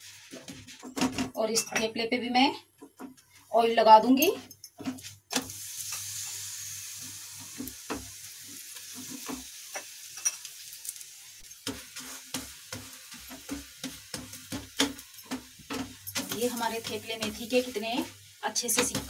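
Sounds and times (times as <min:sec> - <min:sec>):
flatbread sizzling on a griddle: 0:00.0 - 0:01.2, 0:04.8 - 0:19.0
spatula clicking and scraping: 0:11.5 - 0:17.5.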